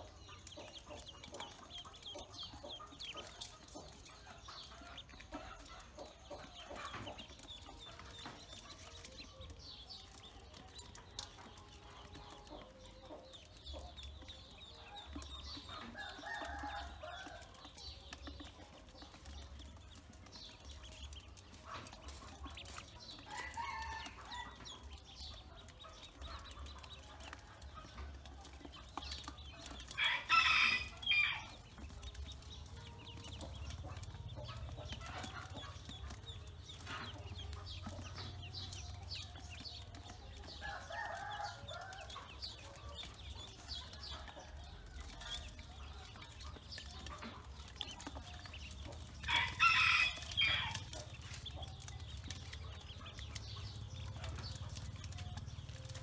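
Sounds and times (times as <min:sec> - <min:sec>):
ducklings peeping: 0:00.0 - 0:56.0
rooster crowing: 0:30.0 - 0:31.5, 0:49.2 - 0:50.8.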